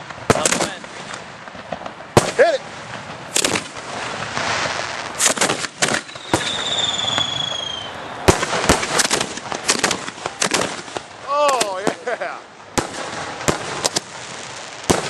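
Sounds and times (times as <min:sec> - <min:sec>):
fireworks bangs: 0:00.0 - 0:15.0
fireworks hissing and crackling: 0:00.0 - 0:15.0
high firework whistle: 0:03.3 - 0:10.8.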